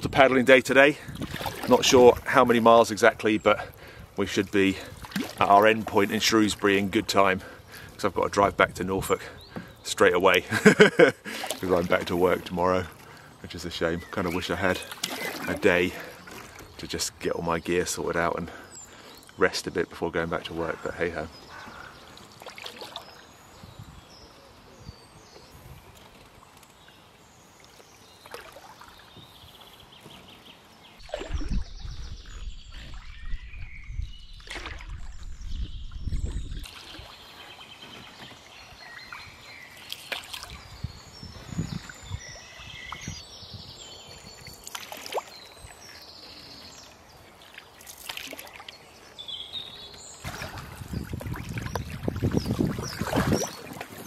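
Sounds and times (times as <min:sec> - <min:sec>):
paddle strokes splashing water: 0:01.1 - 0:02.6, 0:03.6 - 0:07.0, 0:11.2 - 0:13.4, 0:14.0 - 0:16.8, 0:21.6 - 0:23.2, 0:27.6 - 0:30.1, 0:31.0 - 0:33.2, 0:34.3 - 0:35.5, 0:36.2 - 0:40.8, 0:44.4 - 0:46.1, 0:46.9 - 0:48.9, 0:49.6 - 0:54.0.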